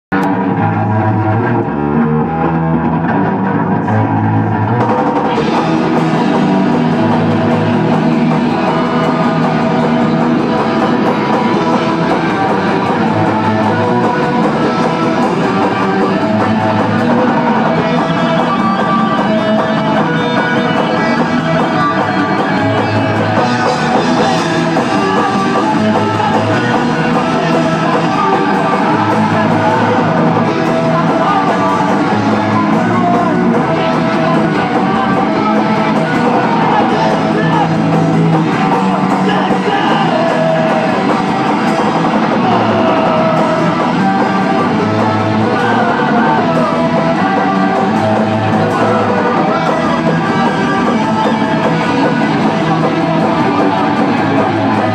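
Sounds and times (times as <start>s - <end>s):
electric guitar: 0.0s - 54.9s
drum kit: 0.1s - 54.9s.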